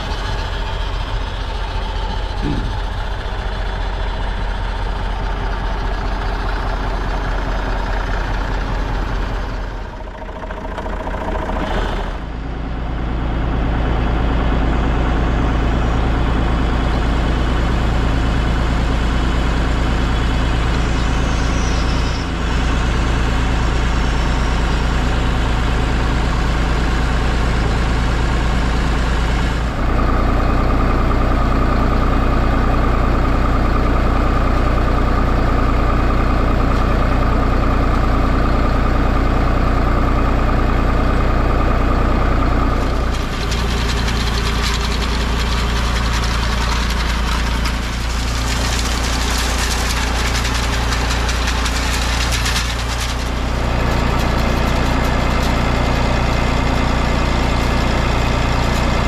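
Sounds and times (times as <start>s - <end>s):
tractor engine running: 0.0s - 59.0s
blades cutting twigs and leaves: 42.8s - 56.0s.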